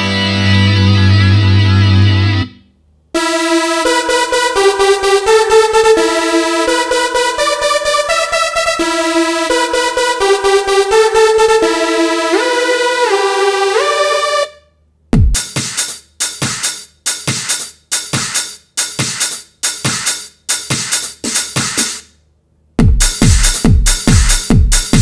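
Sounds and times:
electronic synth and drum loop: 3.2s - 14.5s, 15.2s - 22.1s, 22.8s - 25.0s
synth lead with pitch glides: 3.2s - 14.7s.

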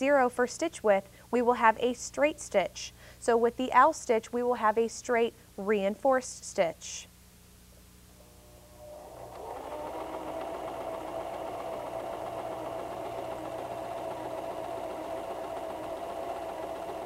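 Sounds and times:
sewing machine humming: 8.4s - 17.0s.

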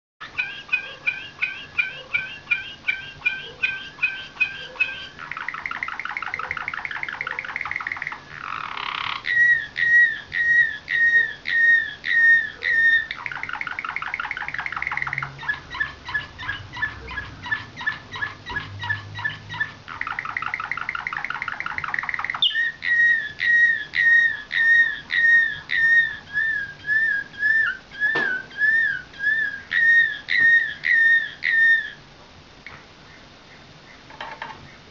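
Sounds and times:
canary fast trills: 0.2s - 32.0s
canary whistled notes: 22.2s - 32.0s.

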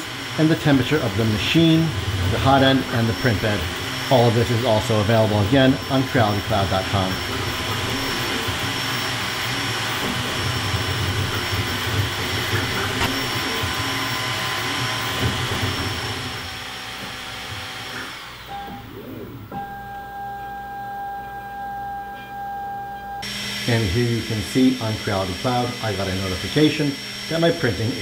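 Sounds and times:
cooling fans whirring with whine: 0.0s - 28.0s.

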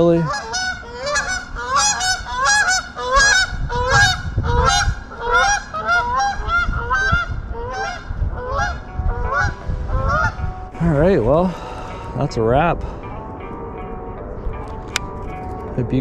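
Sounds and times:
flock of geese honking: 0.0s - 10.7s.

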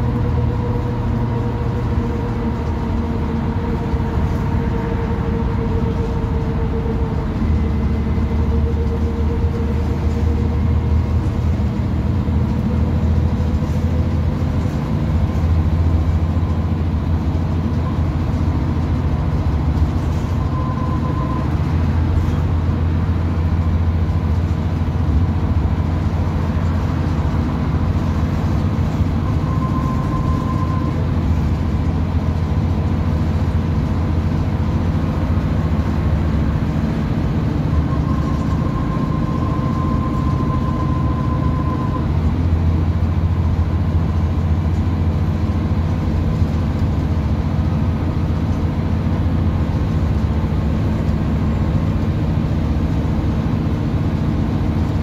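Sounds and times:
bus diesel engine and road rumble: 0.0s - 55.0s
thin high whine: 28.9s - 31.5s, 37.5s - 42.2s.

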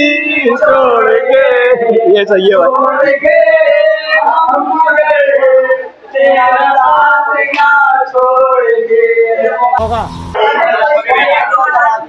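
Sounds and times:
person singing long notes: 9.8s - 10.4s.

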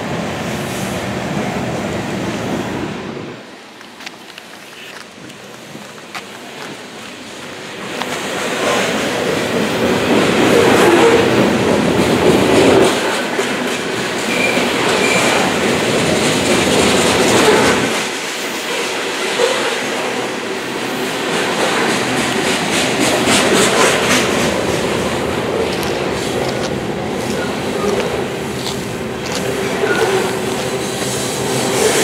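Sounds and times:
steel wheels rumbling on rail: 0.0s - 32.0s
wheels clicking over rail joints: 3.7s - 20.2s, 21.1s - 32.0s.

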